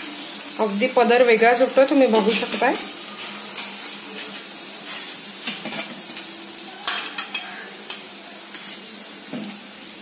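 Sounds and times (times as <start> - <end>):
dough deep-frying in oil: 0.0 - 10.0
metal utensil clicking on pan: 4.9 - 8.9.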